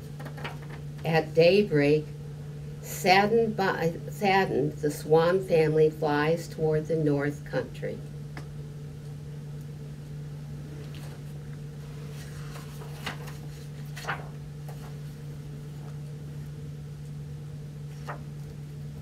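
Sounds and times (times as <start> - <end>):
steady low hum: 0.0 - 19.0
paper page rustling: 10.8 - 16.1, 17.9 - 18.6
sharp paper flicks: 12.3 - 15.0, 17.9 - 18.6.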